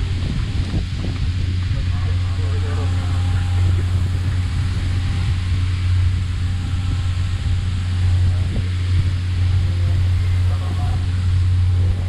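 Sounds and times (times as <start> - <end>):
boat engine drone: 0.0 - 12.0
wake and spray rushing past hull: 0.0 - 12.0.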